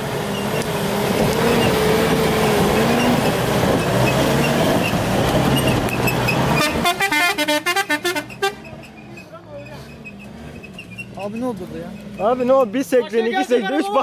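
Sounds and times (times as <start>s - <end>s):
engine revving hard: 0.0s - 8.7s.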